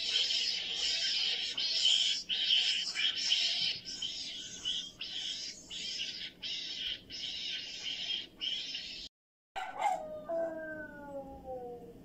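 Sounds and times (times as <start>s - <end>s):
meerkats chattering: 0.0s - 9.1s
dog howling: 9.6s - 12.0s.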